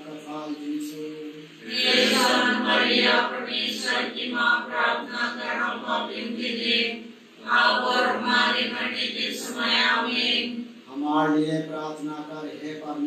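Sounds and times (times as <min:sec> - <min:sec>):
voices reciting prayer: 0:00.0 - 0:13.0.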